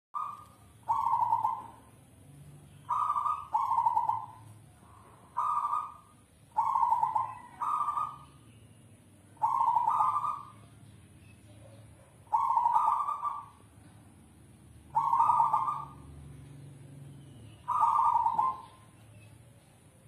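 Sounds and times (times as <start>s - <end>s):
dove cooing: 0.2s - 1.9s, 2.9s - 8.3s, 9.4s - 10.6s, 11.9s - 13.6s, 14.9s - 16.1s, 17.7s - 18.9s.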